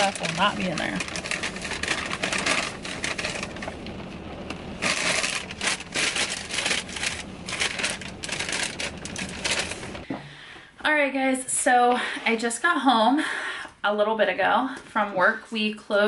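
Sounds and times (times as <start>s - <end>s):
paper bag rustling: 0.0s - 10.1s.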